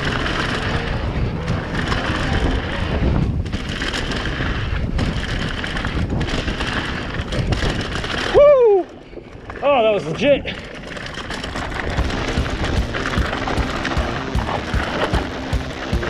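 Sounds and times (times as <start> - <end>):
wind on camera microphone: 0.0 - 10.0
bike rattling: 0.0 - 16.0
tyres rolling on dirt: 0.0 - 16.0.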